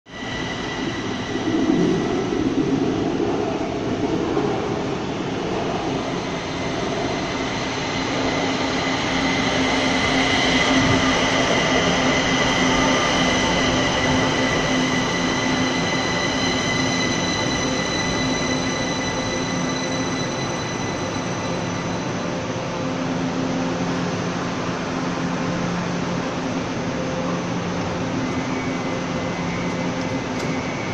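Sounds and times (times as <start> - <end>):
electric train rumble: 0.1 - 30.9
train motor whine: 28.0 - 30.9.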